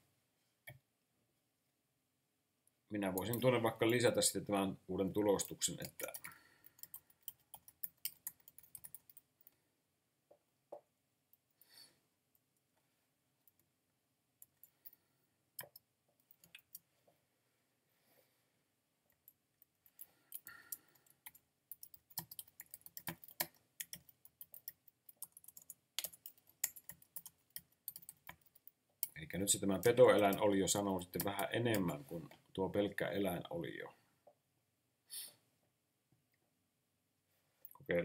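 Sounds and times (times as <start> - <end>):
computer keyboard typing: 5.7 - 9.3, 15.6 - 16.8, 19.9 - 31.9.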